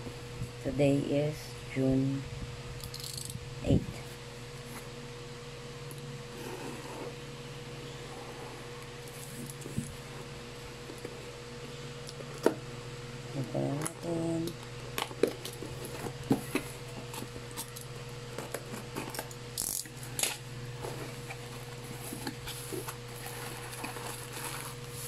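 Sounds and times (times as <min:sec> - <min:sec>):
steady low hum: 0:00.0 - 0:25.0
blade slitting packing tape: 0:19.1 - 0:20.4
cardboard flaps rustling: 0:20.7 - 0:25.0.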